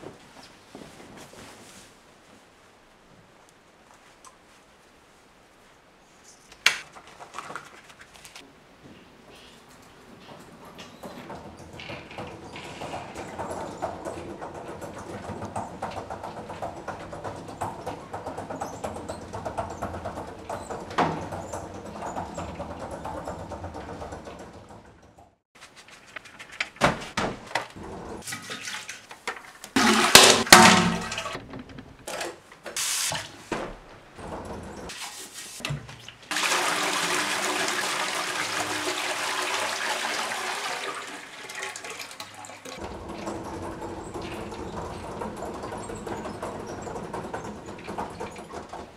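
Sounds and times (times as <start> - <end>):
bedding rustling: 0.0 - 17.5
cart rolling and rattling: 9.4 - 25.4, 26.2 - 28.6, 29.2 - 35.6, 42.6 - 48.9
toilet flushing: 10.8 - 24.8, 27.8 - 29.1, 29.7 - 31.8, 34.2 - 48.9.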